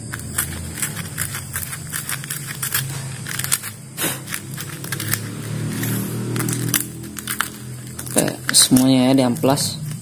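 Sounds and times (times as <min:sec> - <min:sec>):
sandpaper scratching metal: 0:00.0 - 0:10.0.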